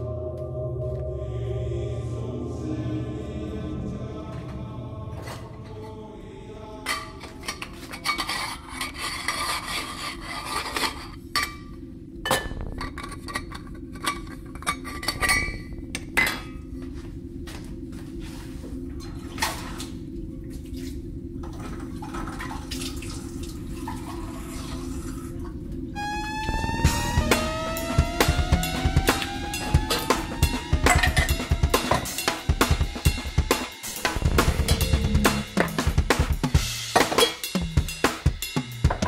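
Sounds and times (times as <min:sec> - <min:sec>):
low drone: 0:00.0 - 0:07.6, 0:23.4 - 0:36.8.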